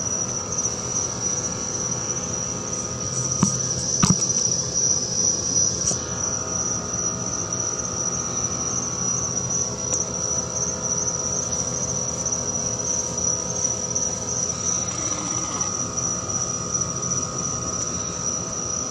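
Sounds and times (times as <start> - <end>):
insects trilling: 0.0 - 18.9
low steady hum: 0.6 - 6.4.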